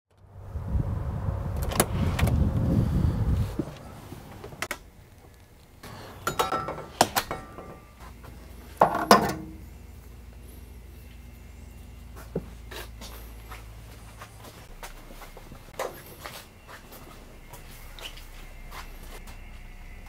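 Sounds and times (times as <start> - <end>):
low rumble: 0.1 - 5.8
faint steady hum: 0.2 - 20.0
footsteps: 12.0 - 20.0.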